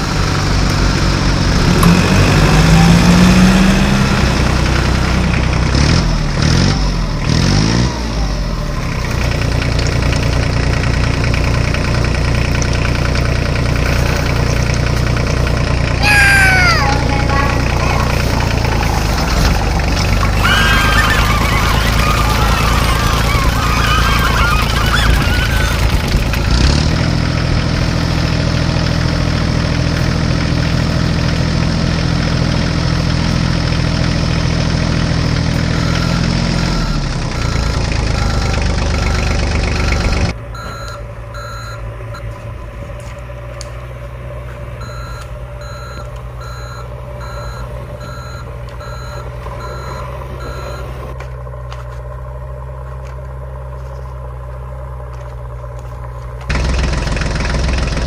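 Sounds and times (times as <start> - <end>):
heavy engine droning: 0.0 - 58.0
reversing alarm beeping: 35.7 - 42.3, 44.8 - 51.0.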